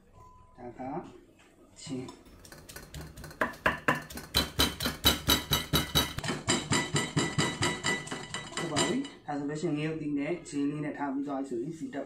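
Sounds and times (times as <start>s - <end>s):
pestle pounding in metal mortar: 2.4s - 9.0s.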